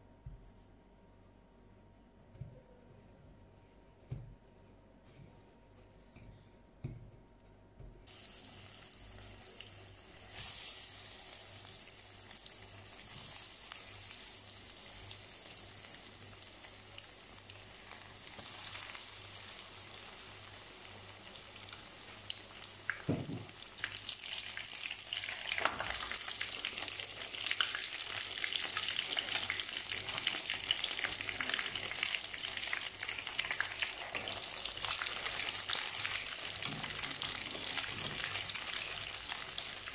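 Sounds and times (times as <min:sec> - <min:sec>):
food deep-frying in oil: 0:08.1 - 0:39.9.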